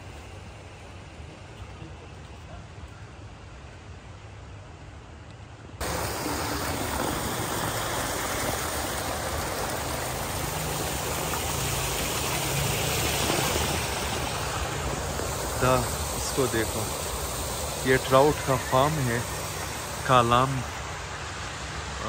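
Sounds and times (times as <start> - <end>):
flowing water rushing: 5.8 - 22.0.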